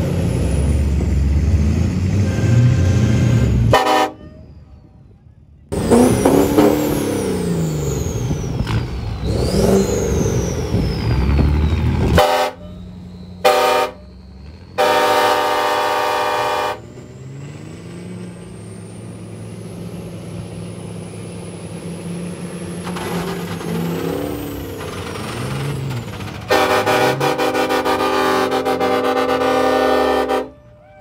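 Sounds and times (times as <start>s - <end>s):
diesel trucks at full throttle: 0.0s - 31.0s
vehicle horn honking: 3.7s - 4.5s, 12.1s - 12.8s, 13.4s - 14.2s, 14.8s - 16.9s, 26.5s - 31.0s.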